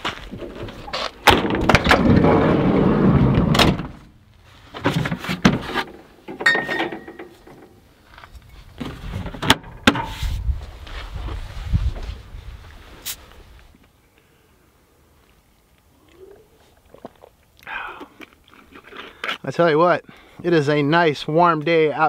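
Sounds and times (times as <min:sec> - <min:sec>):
sliding door rolling rumble: 0:01.9 - 0:03.8.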